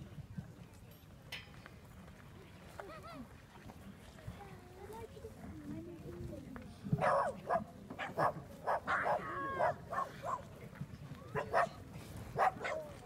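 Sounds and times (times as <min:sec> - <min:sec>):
crowd murmur: 0:00.0 - 0:13.0
dog barking and yelping: 0:08.0 - 0:10.4.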